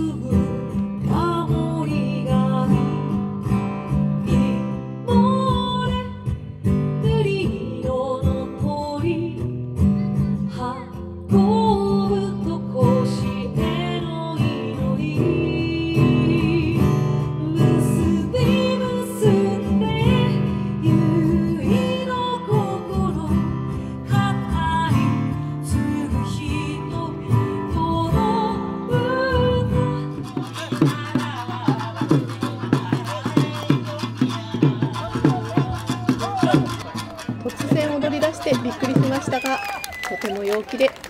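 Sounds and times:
strummed acoustic guitar: 0:00.0 - 0:39.5
person singing: 0:10.0 - 0:39.5.

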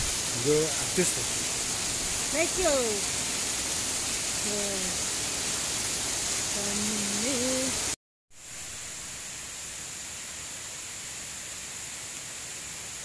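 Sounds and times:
water rushing down a channel: 0:00.0 - 0:07.8
distant waterfall hiss: 0:00.0 - 0:13.0.

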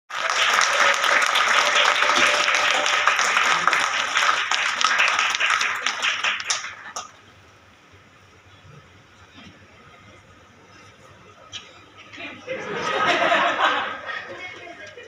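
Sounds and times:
audience applauding: 0:00.1 - 0:07.1.

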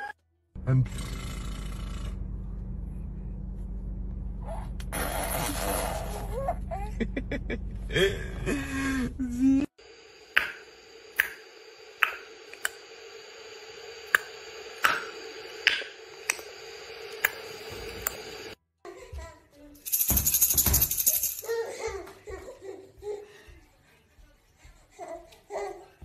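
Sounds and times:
steady low hum: 0:00.6 - 0:04.9, 0:06.6 - 0:18.6.

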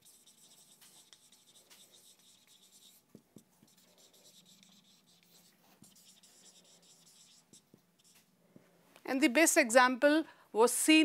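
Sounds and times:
marker writing on whiteboard: 0:00.0 - 0:08.4.

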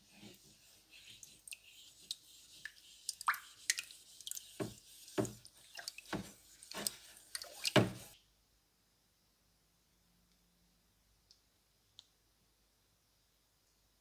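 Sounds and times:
steel wool scrubbing wet blade: 0:00.2 - 0:08.2
dripping: 0:01.1 - 0:08.2.

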